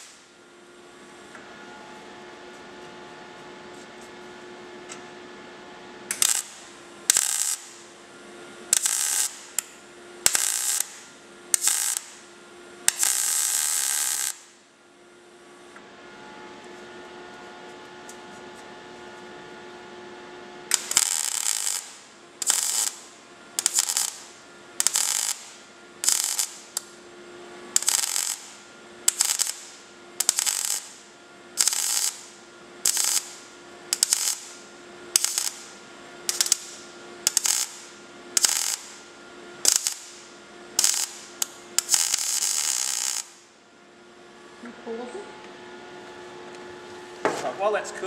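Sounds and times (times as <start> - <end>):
welder arc bursts: 0.0 - 0.3, 6.1 - 8.0, 8.7 - 14.6, 20.6 - 27.0, 27.7 - 43.6.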